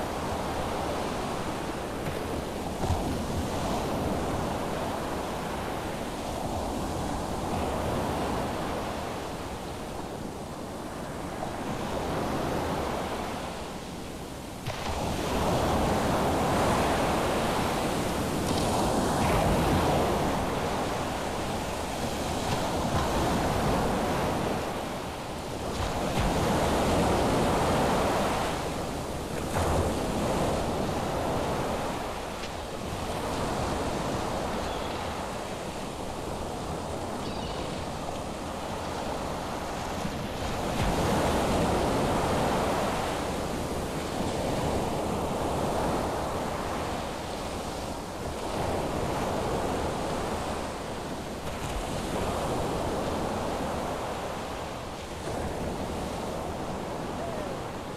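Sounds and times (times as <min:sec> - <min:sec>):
ocean surf breaking: 0:14.6 - 0:57.9.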